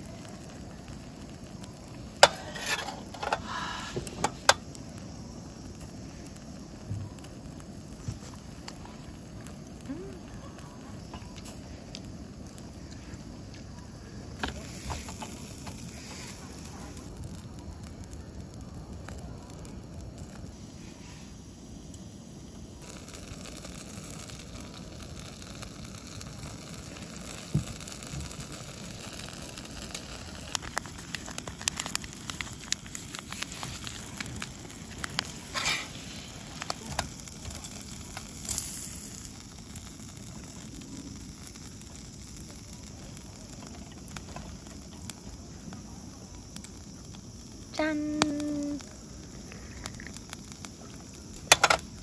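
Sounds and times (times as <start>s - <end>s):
fat popping and crackling: 0.0s - 52.0s
gas burner hiss: 0.0s - 52.0s
pork skin sizzling on a grill: 0.0s - 52.0s.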